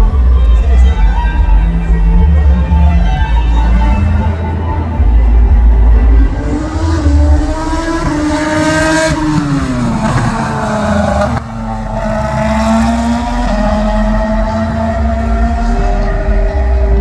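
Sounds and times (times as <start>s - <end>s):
race car engines at high revs: 5.9s - 17.0s.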